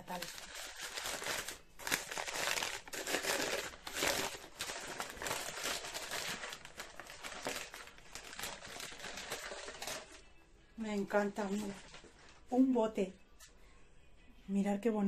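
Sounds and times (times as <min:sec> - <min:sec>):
paper bag crinkling and rustling: 0:00.0 - 0:10.3, 0:11.0 - 0:12.5.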